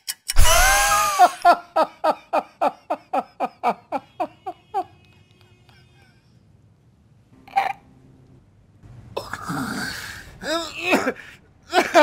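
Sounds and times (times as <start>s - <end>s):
man crying out: 0.4s - 1.5s
man laughing: 0.4s - 5.0s, 10.5s - 12.0s.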